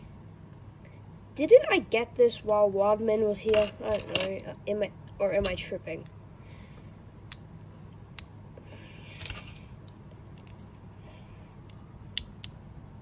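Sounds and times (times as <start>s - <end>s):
plastic bricks clicking together: 3.5s - 4.3s.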